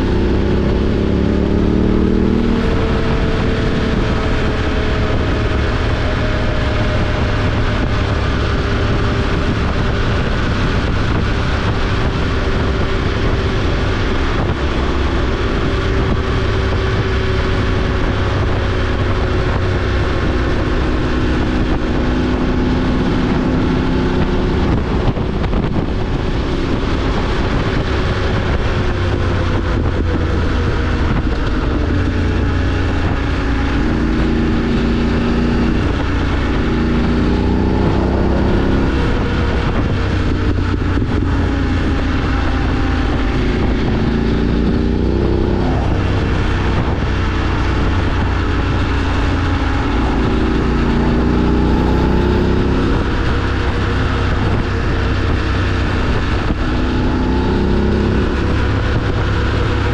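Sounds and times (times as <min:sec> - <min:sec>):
motorcycle engine running: 0:00.0 - 0:59.9
wind and road noise: 0:00.0 - 0:59.9.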